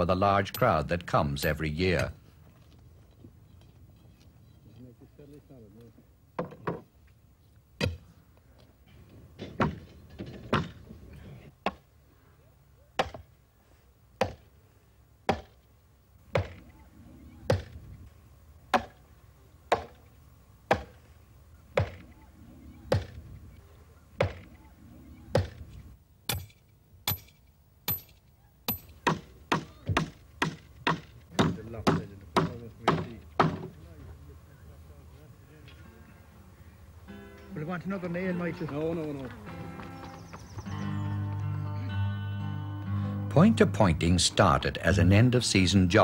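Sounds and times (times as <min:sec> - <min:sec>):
sledgehammer thudding on wooden stake: 0:09.4 - 0:10.8, 0:13.0 - 0:13.3, 0:15.3 - 0:15.6, 0:16.3 - 0:16.6, 0:18.7 - 0:19.0, 0:19.7 - 0:20.0, 0:20.7 - 0:21.0, 0:24.2 - 0:24.4, 0:25.4 - 0:25.6
hammer ringing on nails: 0:26.3 - 0:33.6.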